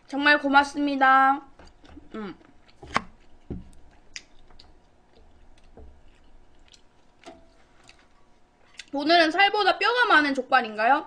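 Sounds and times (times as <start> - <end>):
chewing with wet smacks: 1.6 - 9.0.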